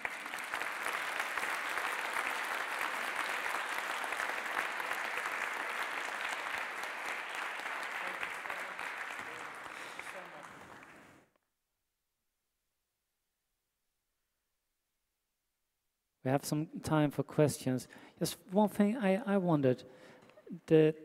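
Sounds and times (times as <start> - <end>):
audience applauding: 0.0 - 11.3.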